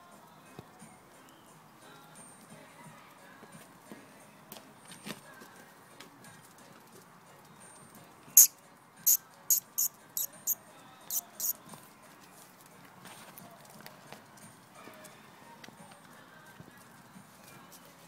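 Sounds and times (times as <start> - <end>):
puppies scuffling on concrete: 11.6 - 18.0.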